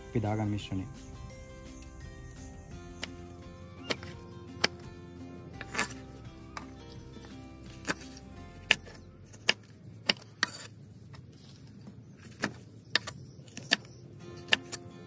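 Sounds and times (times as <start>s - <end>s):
knife chopping on wooden board: 3.0s - 5.0s, 5.6s - 10.7s, 12.2s - 14.9s.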